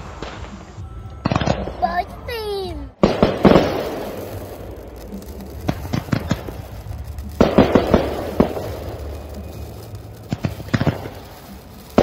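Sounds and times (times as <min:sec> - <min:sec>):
fireworks banging: 0:00.0 - 0:12.0
lingering rumble: 0:02.9 - 0:12.0.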